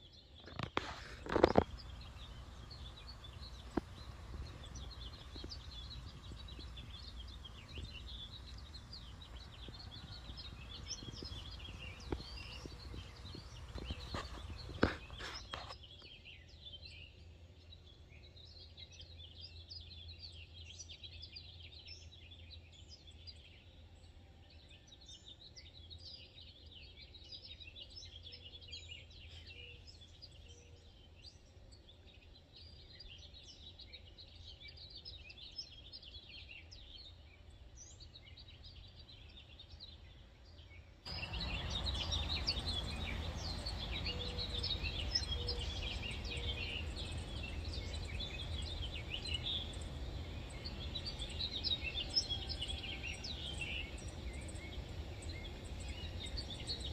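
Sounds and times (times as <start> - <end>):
small birds chirping: 0.0 - 56.9
low steady rumble: 1.6 - 15.2.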